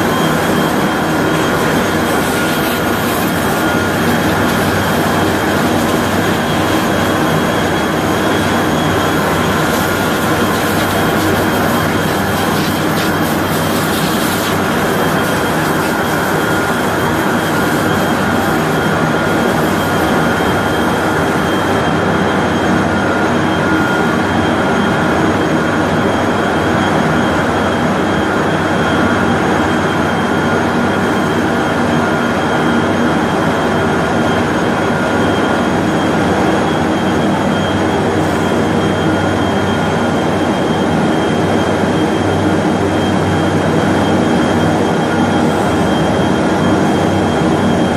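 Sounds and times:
industrial machine din: 0.0s - 25.1s
thin steady whine: 0.0s - 47.9s.

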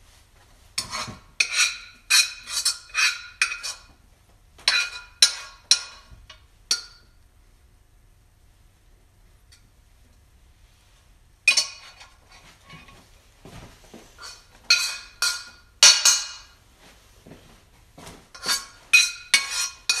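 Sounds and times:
frying pan and utensils clanking: 0.8s - 3.9s, 4.6s - 7.2s, 11.5s - 13.0s, 14.2s - 16.6s, 18.4s - 20.0s.

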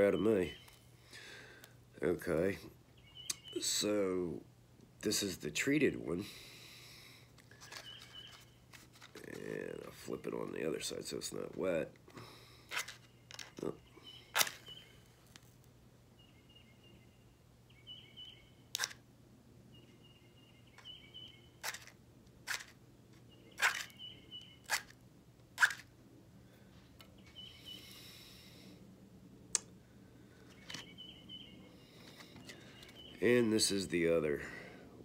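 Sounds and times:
match scratching on striker strip: 18.8s - 19.0s.

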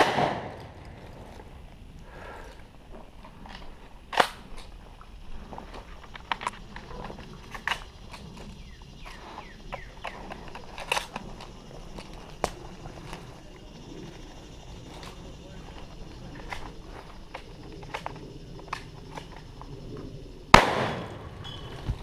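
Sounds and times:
sharp cracks: 0.0s - 1.2s, 3.4s - 4.7s, 5.8s - 13.3s, 20.5s - 22.0s.

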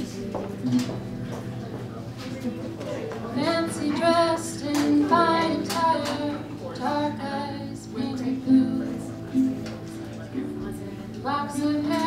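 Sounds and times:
acoustic guitar strumming: 0.0s - 2.0s, 3.4s - 12.0s
woman singing: 3.3s - 9.6s, 10.7s - 12.0s.

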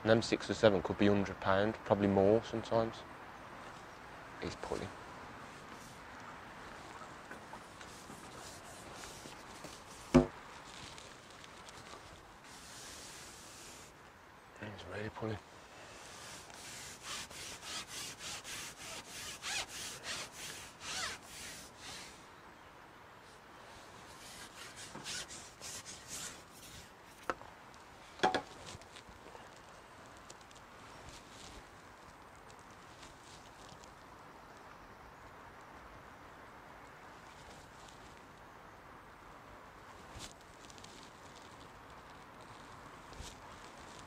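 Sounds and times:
fishing pole rubbing: 6.8s - 13.9s, 16.0s - 22.2s, 24.1s - 27.4s
fishing pole hollow knock: 28.2s - 28.5s.

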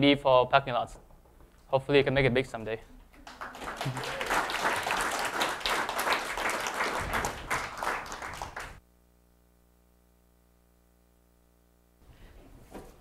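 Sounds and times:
faint steady hum: 2.8s - 13.0s
audience applauding: 3.2s - 8.8s.

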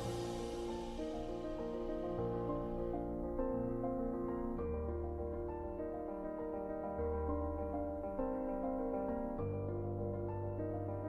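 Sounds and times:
soft keyboard music: 0.0s - 11.0s.

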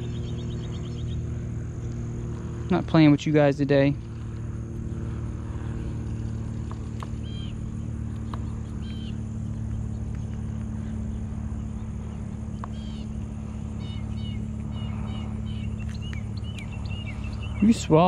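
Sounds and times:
bird chirps: 0.0s - 2.5s, 7.0s - 18.0s
low mechanical hum: 0.0s - 18.0s.

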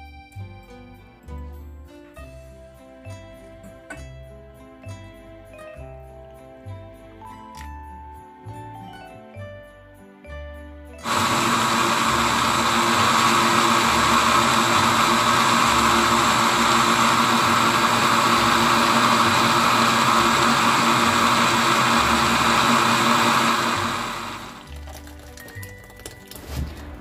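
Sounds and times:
blender motor running: 11.0s - 24.7s.

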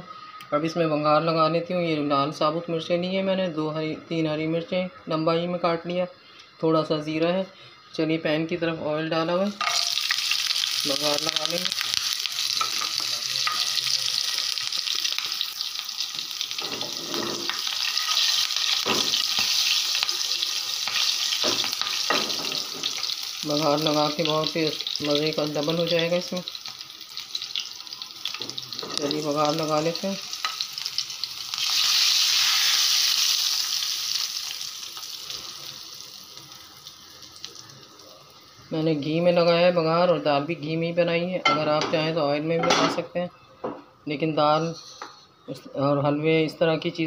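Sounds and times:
spices sizzling in hot oil: 9.1s - 39.9s.

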